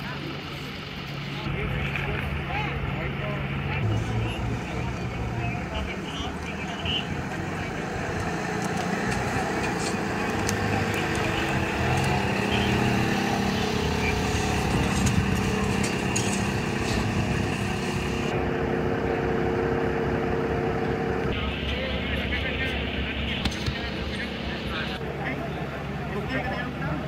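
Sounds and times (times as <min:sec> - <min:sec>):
vehicle engine idling: 0:00.0 - 0:27.0
faint voices: 0:21.3 - 0:27.0.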